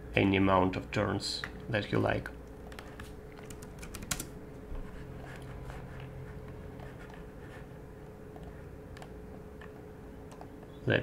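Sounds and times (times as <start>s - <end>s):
low room hum: 0.0s - 11.0s
computer mouse and keyboard clicks: 2.5s - 4.3s, 8.3s - 10.8s.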